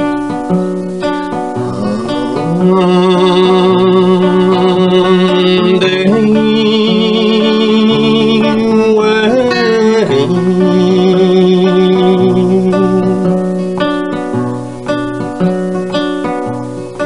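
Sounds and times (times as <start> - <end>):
strummed acoustic guitar: 0.0 - 17.0
man singing with vibrato: 1.2 - 14.6.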